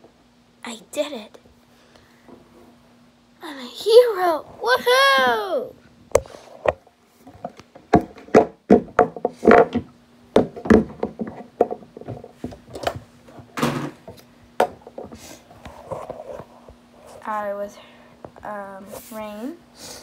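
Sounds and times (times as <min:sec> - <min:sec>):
faint steady hum: 0:00.0 - 0:20.0
hard objects knocking on wood: 0:07.4 - 0:12.7.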